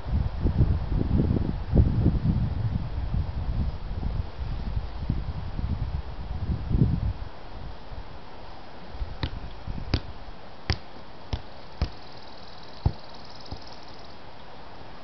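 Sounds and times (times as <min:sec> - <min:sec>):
soccer ball kicks on grass: 0:09.0 - 0:12.1, 0:12.8 - 0:13.8.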